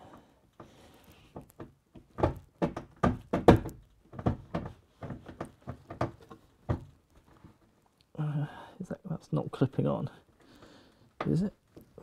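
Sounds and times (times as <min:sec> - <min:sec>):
cabinet door knocking on hinge: 0:02.2 - 0:06.9.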